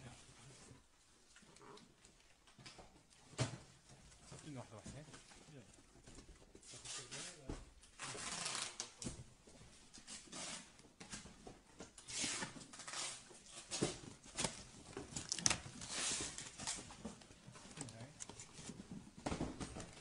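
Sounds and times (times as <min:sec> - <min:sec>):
cardboard boxes rustling: 0:09.4 - 0:20.0.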